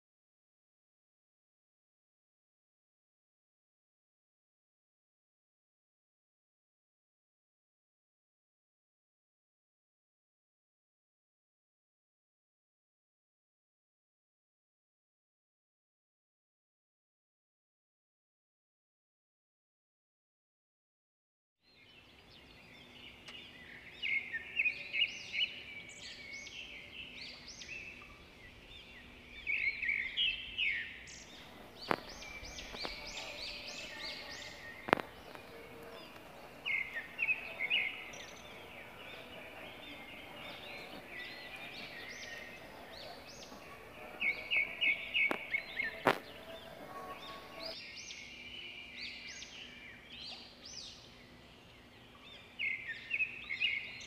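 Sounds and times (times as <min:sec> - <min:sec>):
small birds chirping: 0:21.6 - 0:54.0.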